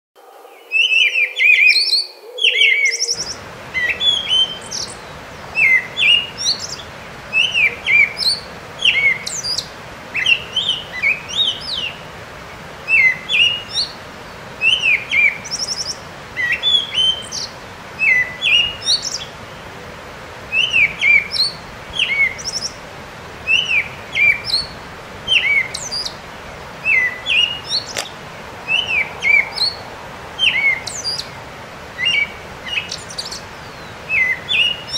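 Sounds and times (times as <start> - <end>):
birds chirping: 0.4 - 34.9
bird trill: 0.6 - 5.0, 5.6 - 12.0, 23.5 - 26.2, 30.4 - 31.3, 32.0 - 34.9
steady background noise: 3.2 - 34.9.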